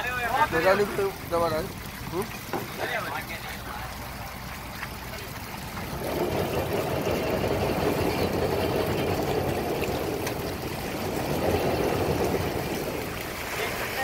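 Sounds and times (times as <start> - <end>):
water rushing and pouring: 0.0 - 14.0
low rumble: 5.3 - 13.6.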